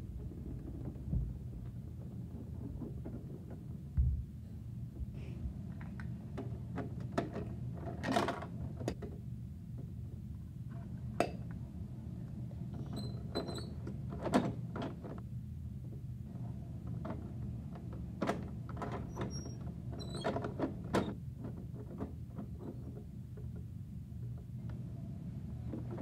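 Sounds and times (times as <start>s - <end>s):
steady low hum: 0.0s - 18.8s.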